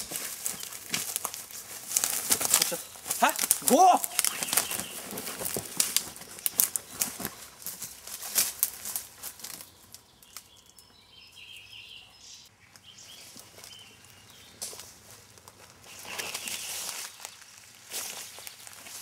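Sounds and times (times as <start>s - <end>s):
footsteps through leaf litter: 0.0s - 10.6s, 13.0s - 19.0s
bird chirping: 2.4s - 8.3s, 9.3s - 14.9s, 15.9s - 18.9s.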